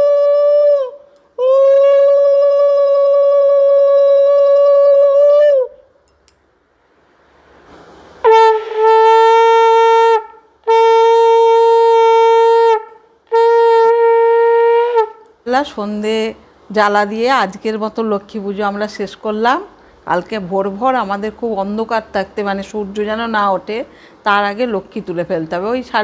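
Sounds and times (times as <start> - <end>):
conch shell blasts: 8.2 - 15.2.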